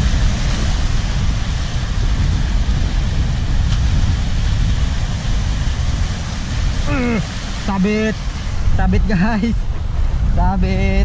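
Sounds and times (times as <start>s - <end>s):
sea waves breaking on rocks: 0.0s - 11.0s
wind buffeting microphone: 0.0s - 11.0s.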